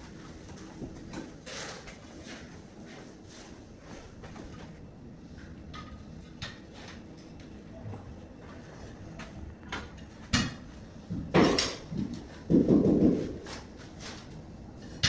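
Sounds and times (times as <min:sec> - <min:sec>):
clatter of hard objects: 0:11.3 - 0:13.7.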